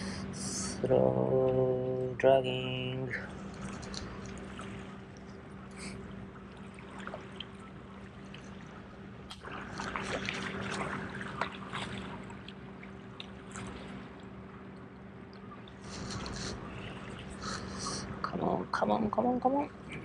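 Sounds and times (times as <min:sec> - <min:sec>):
steady low hum: 0:00.0 - 0:20.0
water lapping against rocks: 0:03.3 - 0:14.4.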